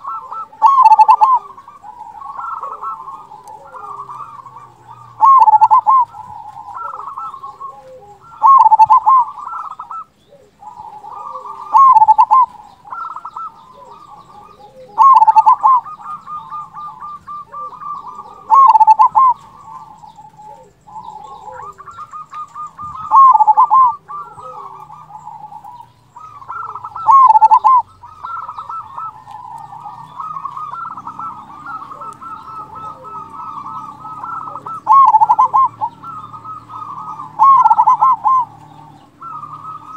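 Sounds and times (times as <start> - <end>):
dove cooing: 0.0 - 39.9.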